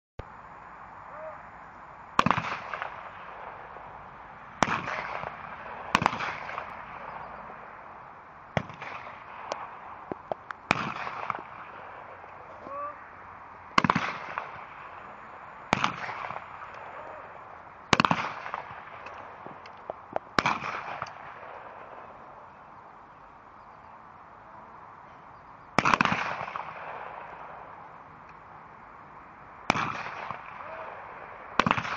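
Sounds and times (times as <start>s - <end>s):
shotgun shots with echo: 2.2s - 3.1s, 4.6s - 7.0s, 10.7s - 11.7s, 13.8s - 14.9s, 15.7s - 17.2s, 17.9s - 19.0s, 20.4s - 21.8s, 25.8s - 27.4s, 29.7s - 30.9s, 31.6s - 31.9s.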